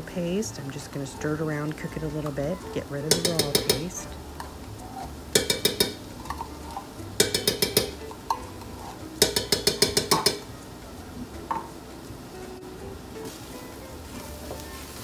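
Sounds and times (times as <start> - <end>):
metal spoon clinking on can: 7.2 - 8.4, 9.2 - 10.4.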